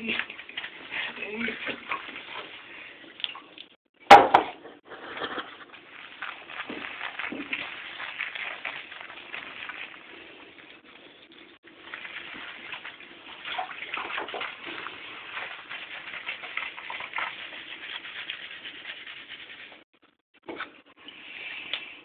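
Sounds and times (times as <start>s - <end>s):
water sloshing in bathtub: 0.0s - 3.8s, 5.6s - 19.9s
hand rubbing wet fur: 11.9s - 19.9s.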